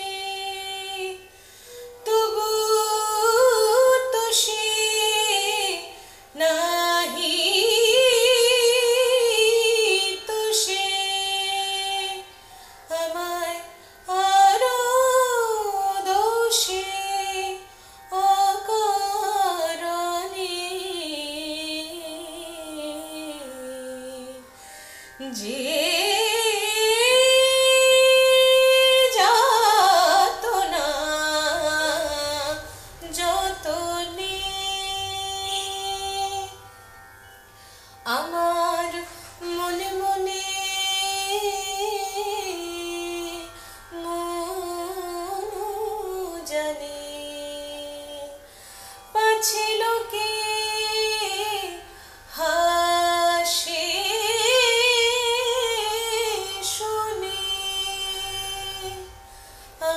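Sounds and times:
woman singing: 0:00.0 - 0:24.5, 0:25.2 - 0:36.6, 0:38.0 - 0:48.5, 0:49.1 - 0:59.9.

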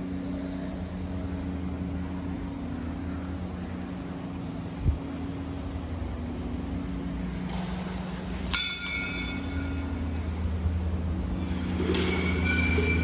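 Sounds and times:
steady low hum: 0:00.0 - 0:13.0
metal bell ringing: 0:08.4 - 0:10.1.

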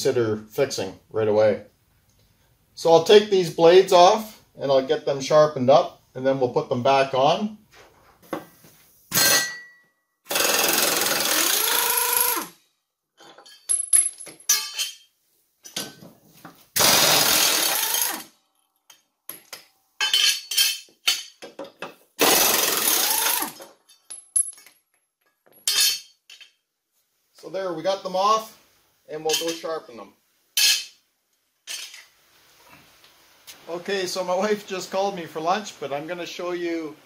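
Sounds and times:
impact wrench hammering: 0:10.3 - 0:12.3
metal clinks and knocks: 0:13.2 - 0:16.1, 0:23.6 - 0:26.6.

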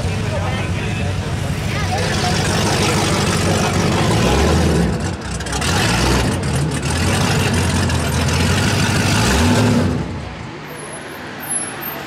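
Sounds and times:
car engine revving: 0:01.1 - 0:10.5.

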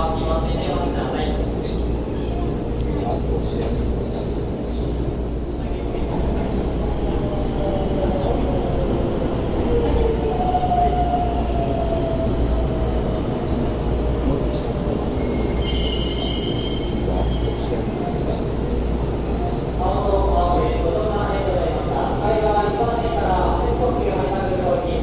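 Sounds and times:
train low rumble: 0:00.0 - 0:25.0
high brake squeal: 0:12.2 - 0:18.1.

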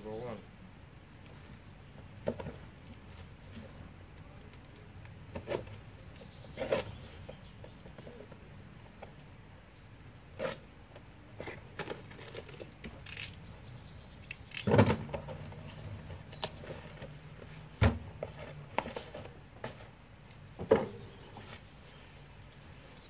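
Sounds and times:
cardboard scraping and rustling: 0:06.5 - 0:07.3, 0:16.6 - 0:19.9
tape slitting: 0:11.8 - 0:13.4, 0:14.3 - 0:15.5.

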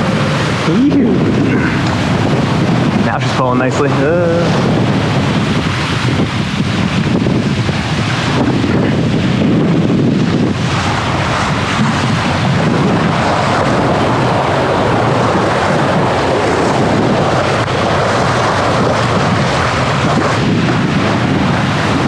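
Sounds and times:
bow wave rushing along hull: 0:00.0 - 0:22.0
wind rushing over microphone: 0:00.0 - 0:22.0.

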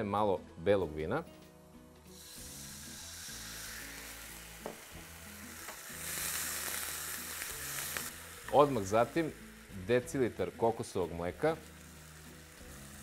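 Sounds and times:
faint background music: 0:00.0 - 0:13.0
wine sizzling in hot oil: 0:02.0 - 0:13.0.

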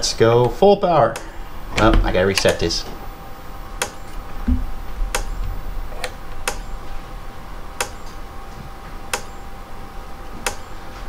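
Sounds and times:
electric fence charger clicking: 0:00.4 - 0:03.0, 0:03.7 - 0:06.8, 0:07.8 - 0:08.2, 0:09.0 - 0:09.5, 0:10.2 - 0:10.8.

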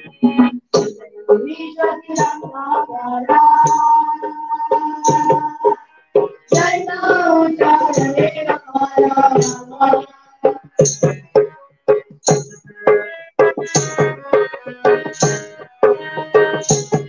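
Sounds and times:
drums beating: 0:00.0 - 0:17.0
harmonium: 0:00.0 - 0:17.0
boys' choir singing: 0:00.8 - 0:05.8, 0:06.5 - 0:10.6.

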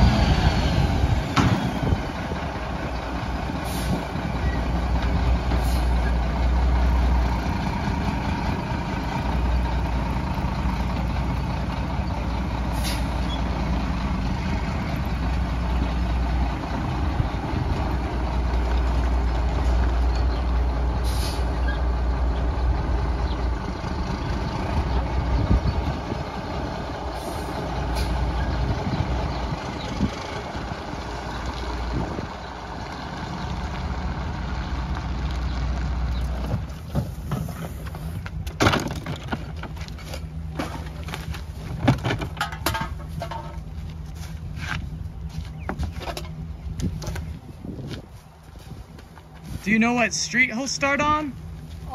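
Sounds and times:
truck diesel engine running: 0:00.0 - 0:38.6
air brake hisses: 0:12.7 - 0:13.1, 0:21.0 - 0:21.5.

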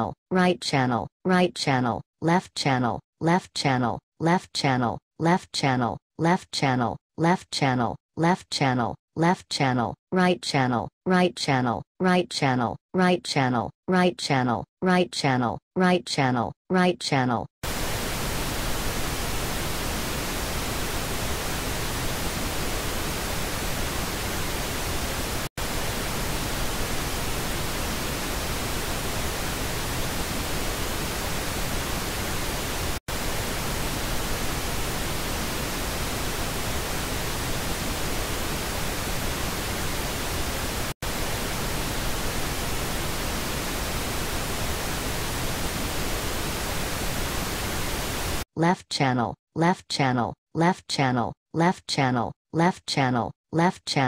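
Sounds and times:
pink noise test signal: 0:17.6 - 0:48.4.

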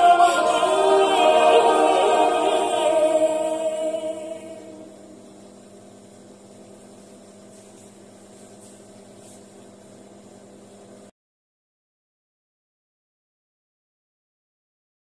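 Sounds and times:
woman singing: 0:00.0 - 0:04.9
backing music: 0:00.0 - 0:05.0
faint steady hum: 0:00.0 - 0:11.1.

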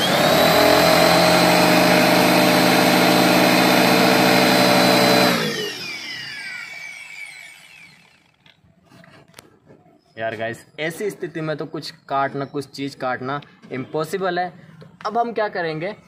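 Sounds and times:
angle grinder whining: 0:00.0 - 0:08.6
grinder winding down: 0:00.0 - 0:08.6.

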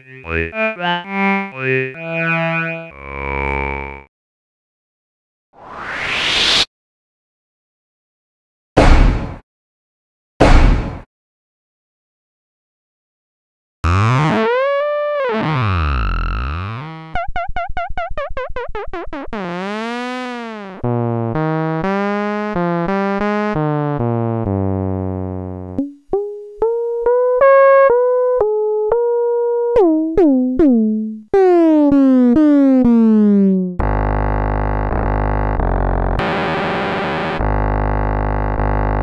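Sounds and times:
stepped synthesizer notes: 0:00.0 - 0:04.1, 0:19.1 - 0:24.5, 0:29.7 - 0:39.0.

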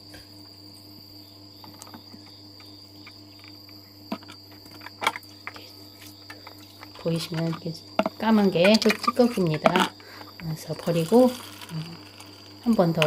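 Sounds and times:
high insect trill: 0:00.0 - 0:13.0.

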